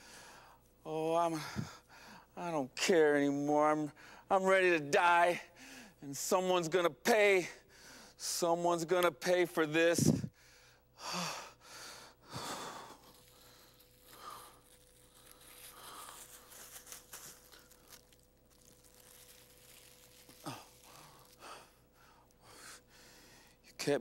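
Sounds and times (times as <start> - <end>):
man gasping: 1.3 - 2.3
man breathing heavily: 1.3 - 2.4, 5.6 - 6.0, 7.6 - 8.2, 10.0 - 18.0, 20.4 - 23.6
plastic bag crinkling: 13.0 - 21.6.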